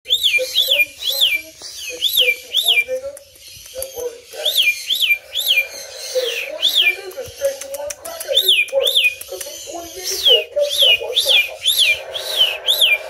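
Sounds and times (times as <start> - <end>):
cockatiel whistling: 0.1 - 7.4, 8.3 - 13.0.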